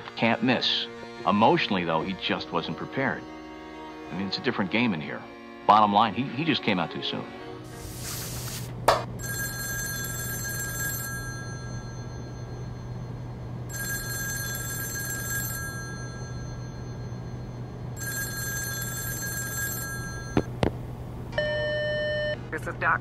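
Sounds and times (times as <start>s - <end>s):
steady low hum: 7.7s - 23.0s
telephone bell ringing: 9.2s - 20.6s, 21.4s - 22.4s.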